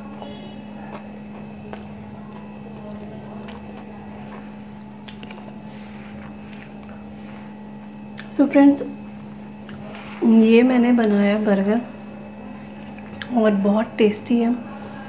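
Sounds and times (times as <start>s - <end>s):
steady low hum: 0.0s - 15.0s
person biting and chewing: 0.2s - 7.1s, 9.6s - 10.0s.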